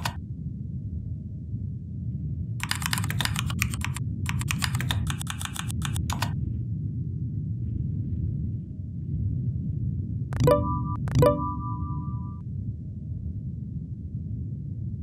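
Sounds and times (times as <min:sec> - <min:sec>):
keyboard typing: 0:02.6 - 0:06.3, 0:10.4 - 0:12.4.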